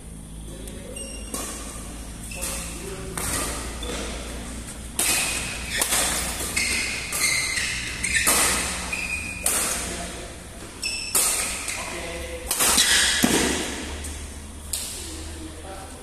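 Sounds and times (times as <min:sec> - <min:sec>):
shoes squeaking on court: 0:00.6 - 0:12.0, 0:12.7 - 0:13.3
rackets hitting shuttlecock: 0:00.6 - 0:15.1.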